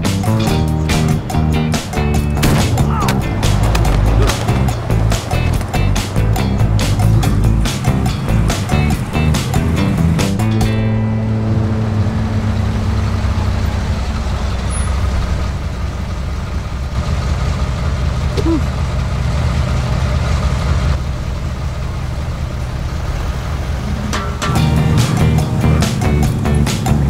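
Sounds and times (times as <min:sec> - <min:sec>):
vehicle engine idling: 0:00.0 - 0:27.0.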